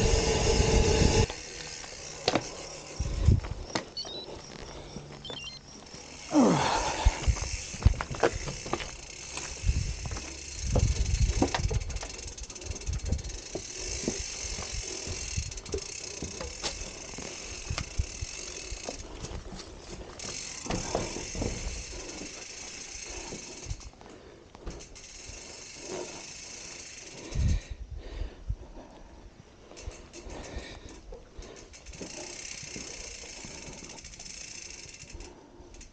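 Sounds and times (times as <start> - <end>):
steady high hiss: 0.0 - 3.3
bike rattling and knocking: 0.0 - 3.9, 5.8 - 27.7, 29.7 - 35.9
bicycle freewheel ticking: 0.0 - 4.1, 5.6 - 27.8, 29.6 - 35.9.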